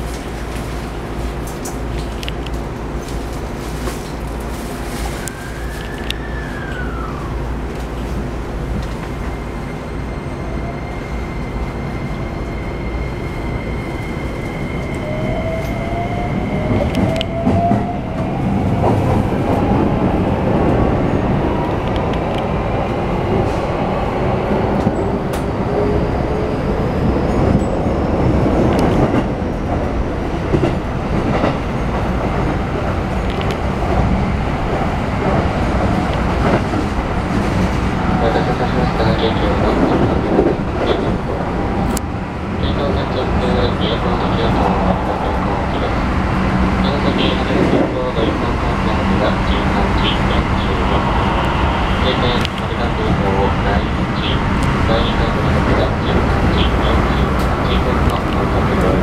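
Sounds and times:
train inverter whine rising: 0.1 - 22.4, 37.9 - 59.0.

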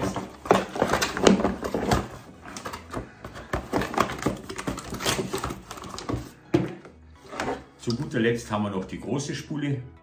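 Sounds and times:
cardboard scraping and knocking: 0.0 - 7.7.

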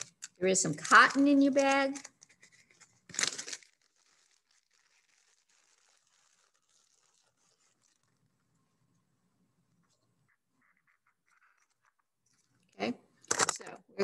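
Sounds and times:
plastic bag crinkling: 0.0 - 8.3.

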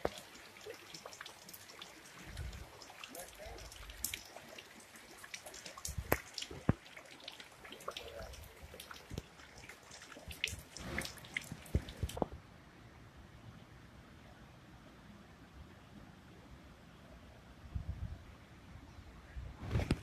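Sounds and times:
water dripping from trees: 0.0 - 12.3.

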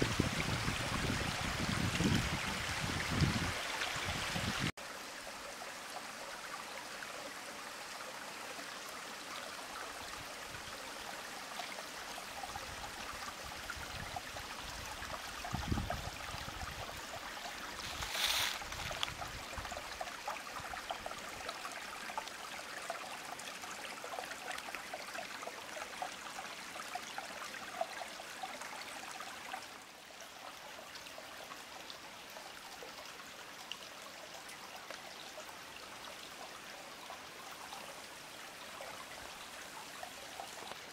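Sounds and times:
stream trickling over rocks: 0.0 - 40.9.

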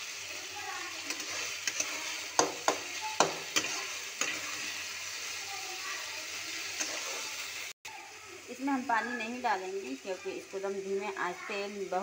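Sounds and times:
meat sizzling in hot oil: 0.0 - 12.0
metal spatula knocking and scraping pan: 1.1 - 4.5.

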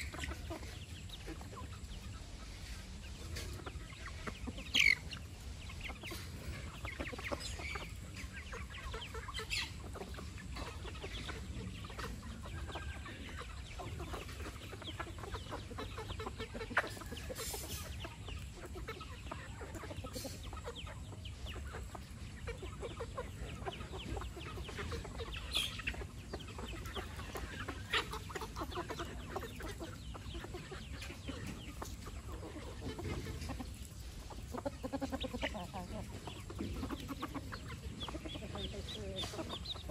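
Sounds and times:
chickens clucking: 0.0 - 39.9
sharp high chicken calls: 4.1 - 5.3.

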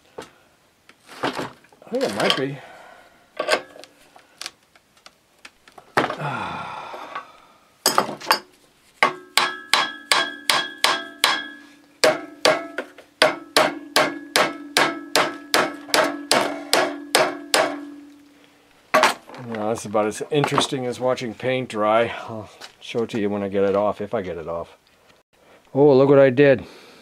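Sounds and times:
hammer ringing on steel: 9.1 - 18.1.

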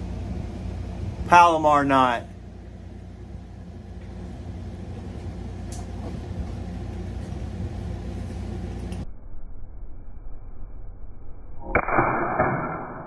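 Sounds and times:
low hum with rumble: 0.0 - 13.0.

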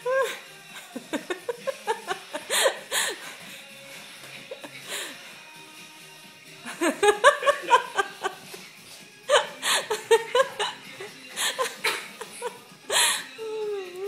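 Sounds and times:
person laughing: 0.0 - 3.2, 4.2 - 5.1, 6.6 - 8.6, 9.3 - 13.7.

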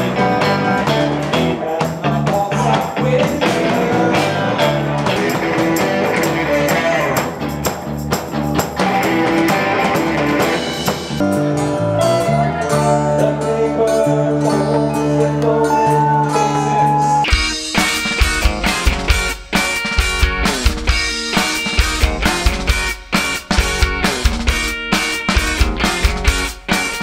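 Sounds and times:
rock band playing: 0.0 - 27.0.

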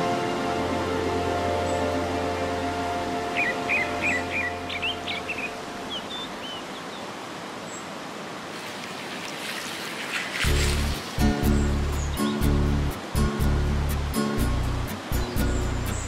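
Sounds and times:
soft background music: 0.0 - 6.6, 10.4 - 16.0
water rushing over weir: 5.6 - 13.4
music with heavy bass: 10.5 - 16.0.

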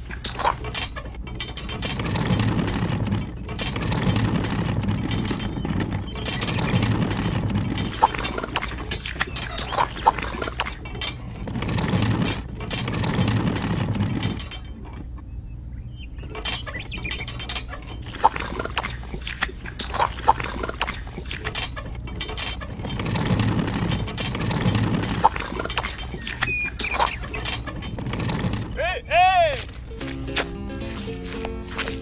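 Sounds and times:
small plastic parts clicking and rattling: 0.0 - 14.8
wet cement scraping and sliding: 29.6 - 32.0.

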